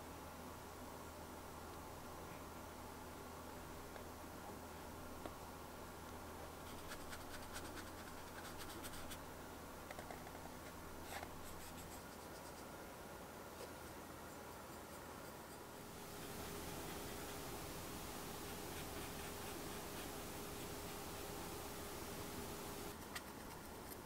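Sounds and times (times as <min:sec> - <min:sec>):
brush scratching on paper: 0:14.7 - 0:23.7.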